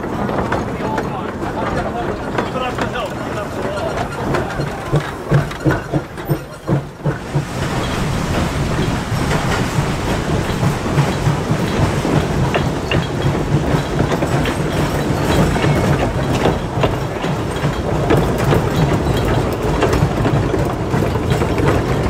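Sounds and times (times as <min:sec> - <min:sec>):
rail cars clattering on track: 0:00.0 - 0:22.0
knocks: 0:01.7 - 0:22.0.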